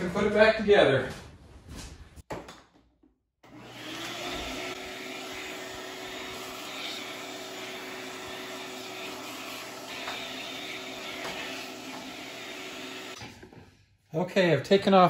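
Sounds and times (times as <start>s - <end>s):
shop vacuum running: 3.4s - 13.3s.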